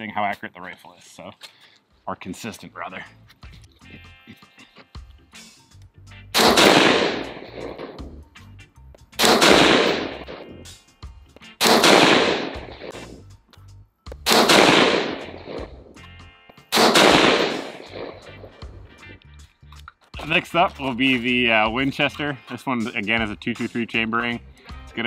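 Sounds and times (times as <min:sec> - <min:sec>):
rifle shots with echo: 0:06.4 - 0:08.0, 0:09.2 - 0:10.5, 0:11.6 - 0:13.0, 0:14.3 - 0:15.7, 0:16.7 - 0:18.4.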